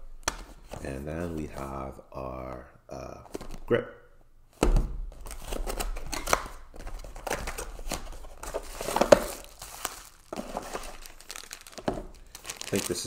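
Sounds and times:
cardboard and plastic wrap rustling: 5.1 - 13.0.

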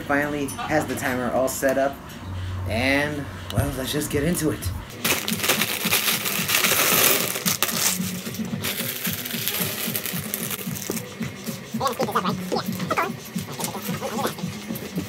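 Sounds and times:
plastic bags crinkling: 4.9 - 11.1, 11.8 - 14.5
plastic pieces clattering: 5.0 - 11.0.

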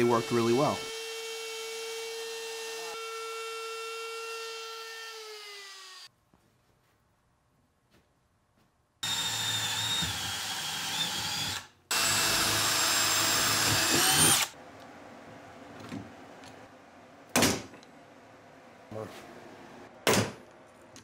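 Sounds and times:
cordless drill whining: 9.0 - 14.6.

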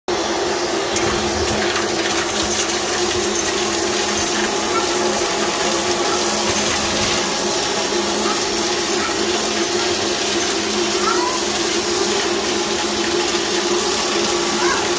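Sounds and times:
stick vacuum cleaner running: 0.1 - 14.9.

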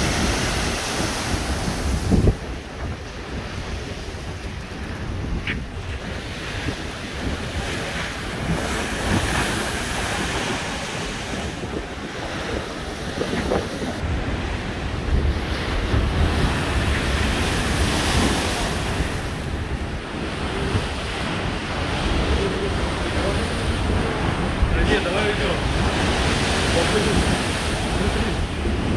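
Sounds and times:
surf breaking against embankment: 0.0 - 19.9
wind buffeting microphone: 0.0 - 28.9.

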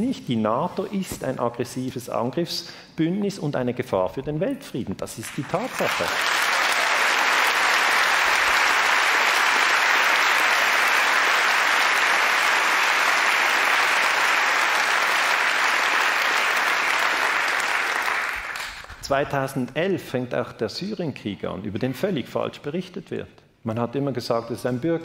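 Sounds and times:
audience applauding: 5.3 - 19.0.

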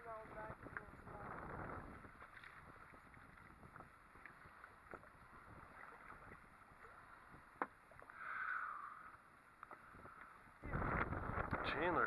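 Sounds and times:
faint wind noise: 0.0 - 12.0.

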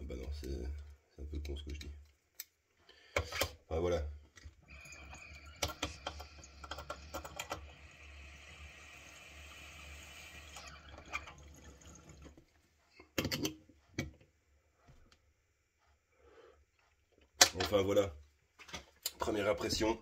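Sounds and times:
water bubbling in a pipe: 4.6 - 12.4.

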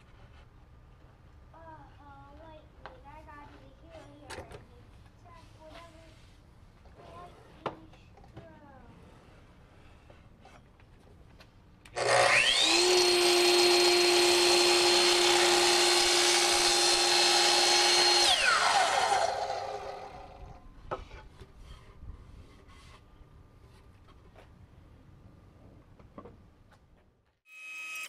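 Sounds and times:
miter saw whine: 12.0 - 20.5.

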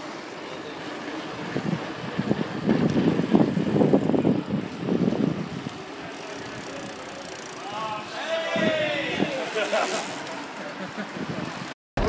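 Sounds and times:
wind buffeting on camera: 1.3 - 7.0, 8.5 - 9.4, 11.1 - 11.7.

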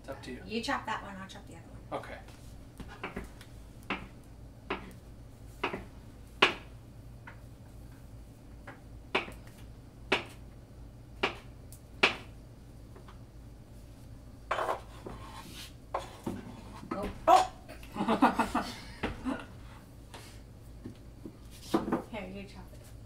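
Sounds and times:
knife tapping on cutting board: 5.6 - 6.6.

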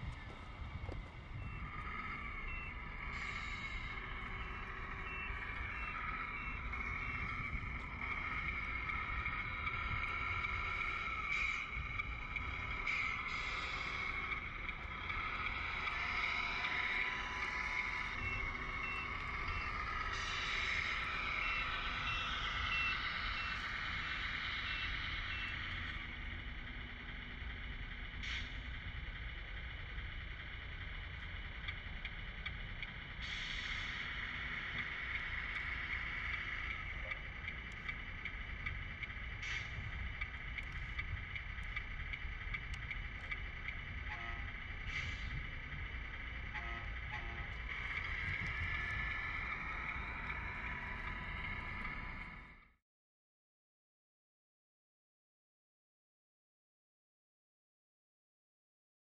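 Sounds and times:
reversing alarm beeping: 0.0 - 26.7, 32.7 - 52.6
wind rumble on microphone: 0.0 - 27.2, 33.9 - 52.5
toy truck motor: 1.5 - 52.6.

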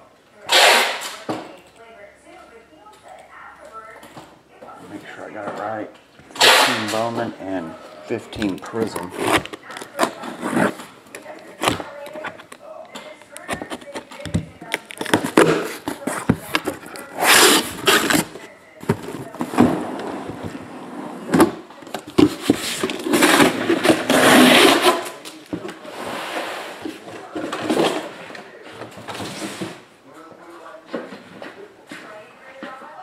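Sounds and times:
cardboard boxes rustling and scraping: 8.1 - 12.4, 15.0 - 28.2.

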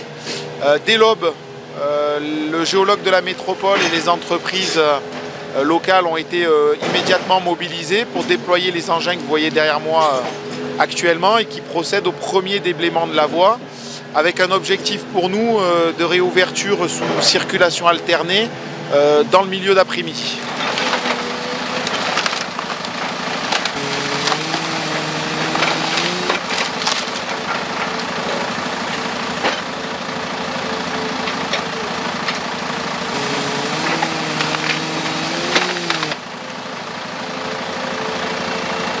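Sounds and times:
excavator engine drone: 0.0 - 39.0
wood snapping and cracking: 20.4 - 29.7, 31.2 - 36.2.

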